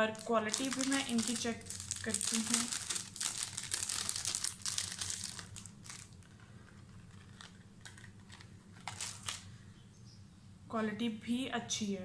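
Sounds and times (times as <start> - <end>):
plastic bag rustling: 0.0 - 9.5
low steady hum: 0.0 - 12.0.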